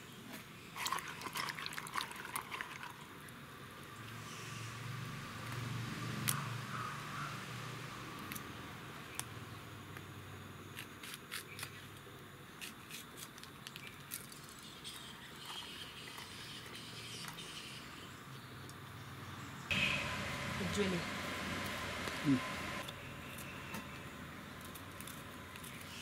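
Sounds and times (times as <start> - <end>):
chillies clicking and snapping: 12.6 - 14.5.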